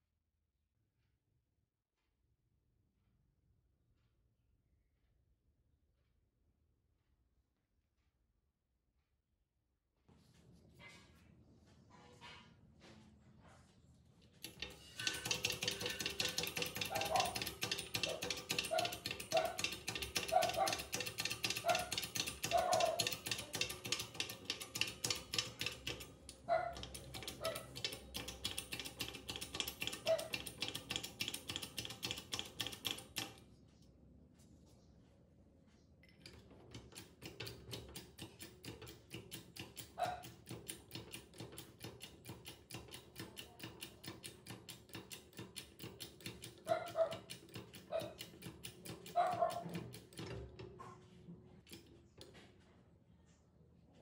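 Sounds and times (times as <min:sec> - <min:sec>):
bottle jack clicking: 0:14.4 - 0:33.3.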